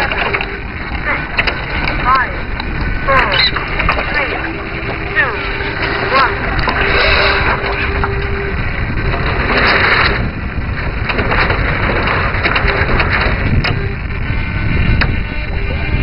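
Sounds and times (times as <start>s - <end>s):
water rushing along hull: 0.0s - 16.0s
wind buffeting microphone: 0.0s - 16.0s.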